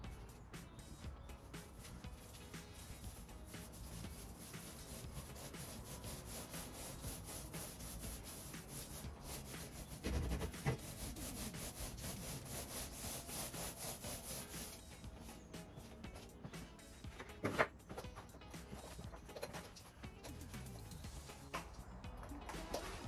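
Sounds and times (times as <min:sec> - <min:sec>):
paint roller rubbing on wall: 0:01.6 - 0:15.0.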